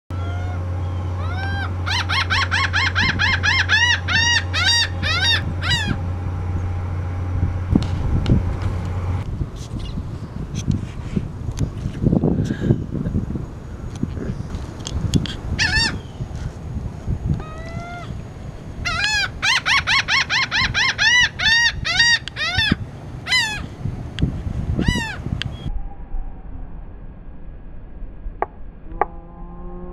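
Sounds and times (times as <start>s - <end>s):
gull laughing call: 0.1s - 6.0s, 15.6s - 16.0s, 17.4s - 18.1s, 18.9s - 23.7s.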